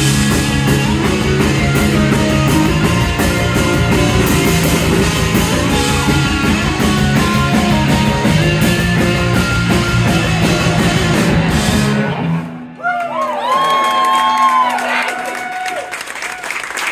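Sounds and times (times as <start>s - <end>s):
live rock band playing: 0.0s - 12.8s.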